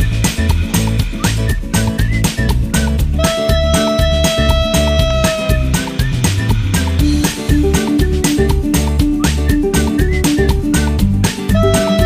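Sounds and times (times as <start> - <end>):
upbeat background music: 0.0 - 12.0
long held note: 3.2 - 5.8, 11.6 - 12.0.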